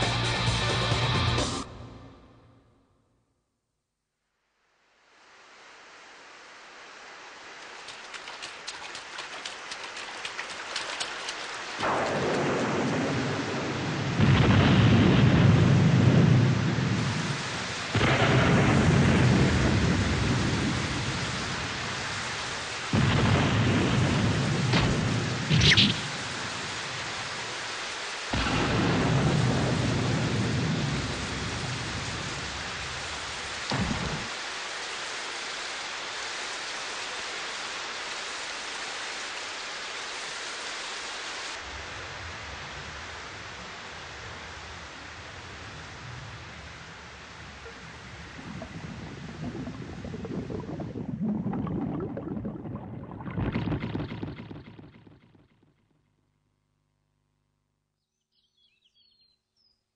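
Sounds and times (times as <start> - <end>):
steady rain: 4.6 - 51.6
thunder claps rumbling: 10.8 - 27.6, 28.3 - 34.4, 45.5 - 54.8.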